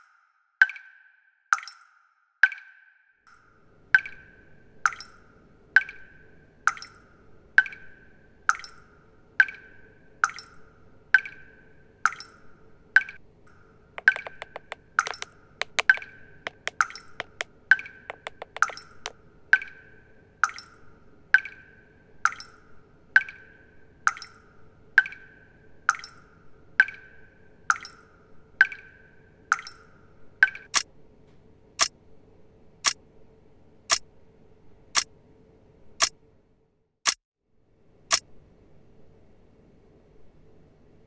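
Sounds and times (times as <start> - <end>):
tap dripping: 4.9 - 5.2, 6.7 - 7.0, 9.4 - 10.6, 11.2 - 11.5, 12.1 - 12.4, 13.0 - 13.2, 14.0 - 20.8, 23.2 - 23.5, 24.1 - 24.4, 25.9 - 26.2, 27.7 - 28.0, 28.6 - 29.8
wristwatch ticking: 14.0 - 19.8.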